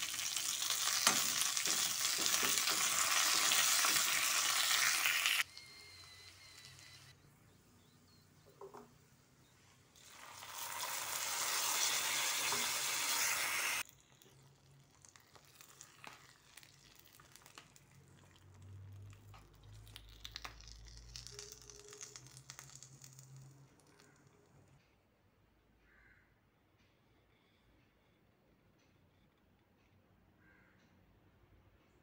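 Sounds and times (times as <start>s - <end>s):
hot oil sizzling loudly: 0.0s - 7.1s, 10.0s - 17.8s.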